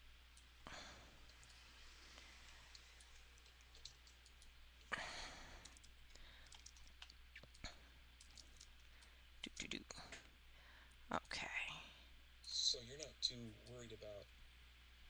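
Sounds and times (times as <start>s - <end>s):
soft breaths: 0.6s - 3.8s, 4.9s - 6.8s, 10.0s - 12.2s.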